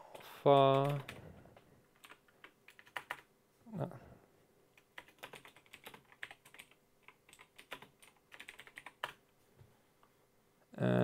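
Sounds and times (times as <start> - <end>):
keyboard typing: 0.0 - 1.2, 1.9 - 3.3, 4.8 - 9.2.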